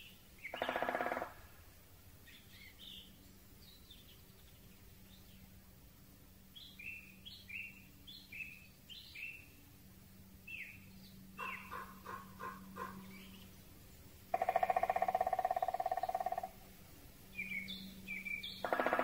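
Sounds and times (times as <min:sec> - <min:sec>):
rapid pulsed bird trill: 0:00.0 - 0:01.4, 0:10.4 - 0:19.0
faint steady hum: 0:00.0 - 0:19.0.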